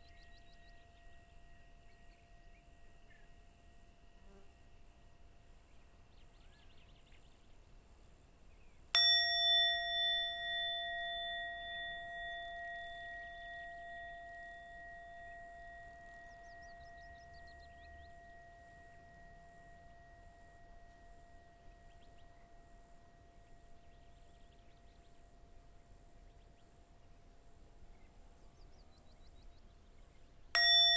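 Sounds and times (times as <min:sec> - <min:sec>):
handheld bowl bell ringing: 0:09.0 - 0:24.2, 0:30.6 - 0:30.9.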